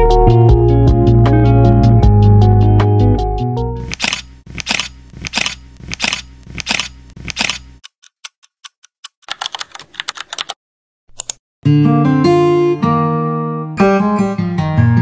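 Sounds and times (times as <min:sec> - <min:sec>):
keyboard typing clicks: 0:03.8 - 0:11.4
acoustic guitar music: 0:11.6 - 0:15.0.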